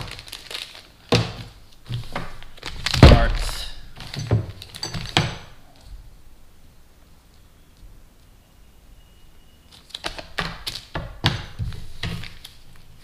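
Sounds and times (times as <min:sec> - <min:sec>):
plastic bags crinkling: 0:00.0 - 0:05.8, 0:09.7 - 0:11.0.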